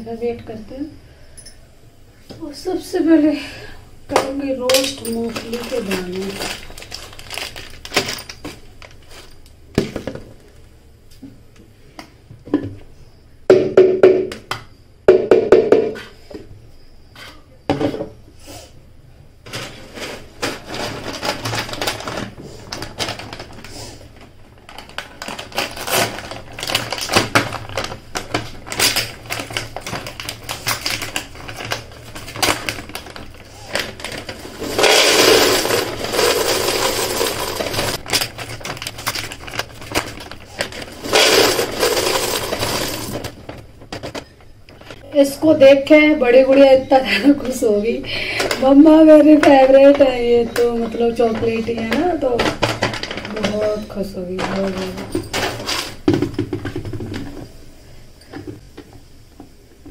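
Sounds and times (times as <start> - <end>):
dry ingredients rattling in plastic jar: 4.1 - 9.4, 24.6 - 43.6, 48.7 - 57.1.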